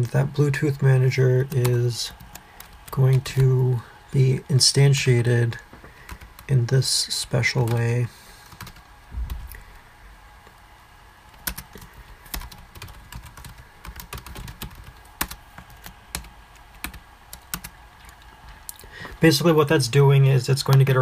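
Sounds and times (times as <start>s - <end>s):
typing on a computer keyboard: 6.0s - 6.5s, 8.5s - 8.8s, 11.3s - 18.2s
soft low bump: 9.1s - 9.5s.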